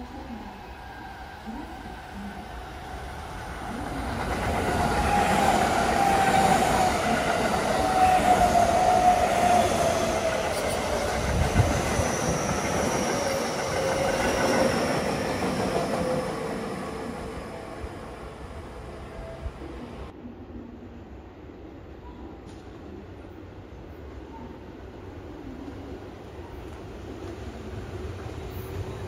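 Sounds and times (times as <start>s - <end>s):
electric train passing: 0.0s - 20.1s, 25.9s - 29.0s.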